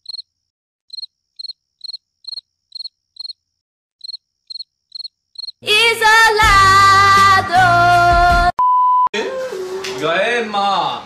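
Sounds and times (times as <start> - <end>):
cricket chirps: 0.0 - 0.3, 0.9 - 3.4, 4.0 - 5.6.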